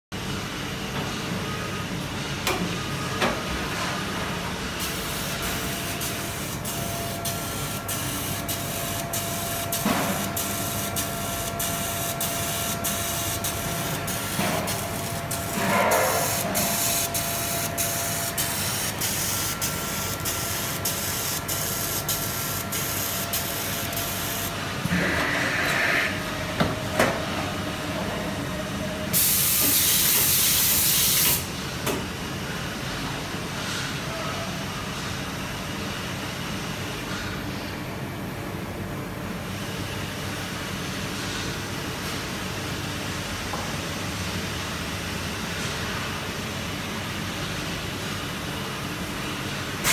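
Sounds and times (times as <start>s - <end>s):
faint machine hum: 0.2s - 49.9s.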